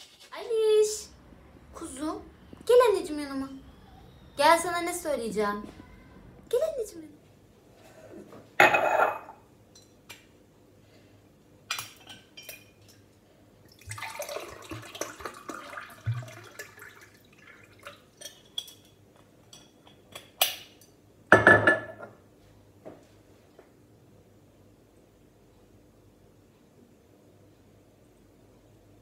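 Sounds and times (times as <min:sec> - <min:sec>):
glass clattering on countertop: 0:08.6 - 0:10.0, 0:21.3 - 0:22.2
water pouring into glass: 0:13.7 - 0:18.4.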